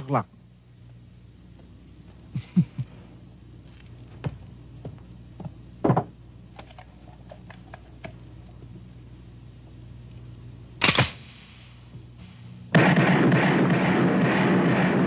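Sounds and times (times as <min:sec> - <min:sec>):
pistol shots: 0:10.8 - 0:11.7, 0:12.7 - 0:15.0.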